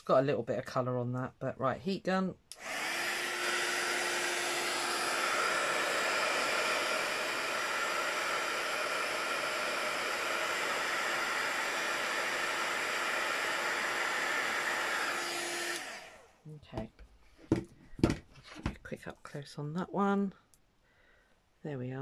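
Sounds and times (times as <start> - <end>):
heat gun blowing: 2.5 - 16.4.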